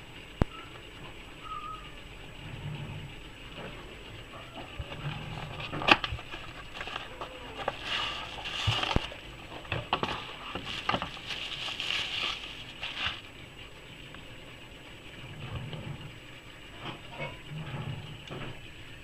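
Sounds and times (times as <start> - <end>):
bubble wrap crinkling: 5.1 - 13.4
cardboard box handled: 5.3 - 13.3.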